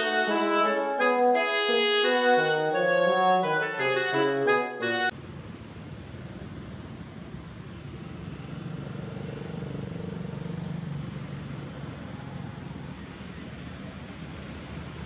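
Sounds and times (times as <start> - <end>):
steady background noise: 4.8 - 15.0
vehicle engine hum: 5.0 - 15.0.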